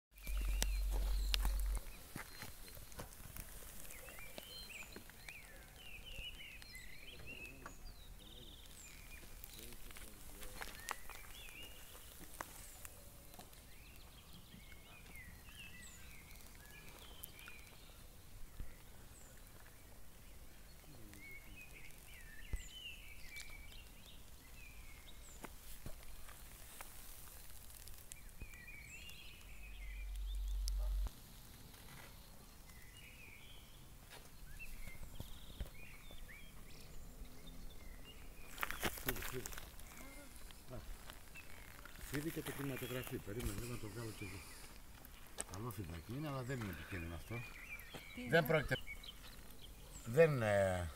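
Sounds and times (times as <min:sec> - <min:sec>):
birds twittering: 0:00.1 - 0:50.9
low rumble: 0:00.2 - 0:02.0, 0:29.4 - 0:31.1.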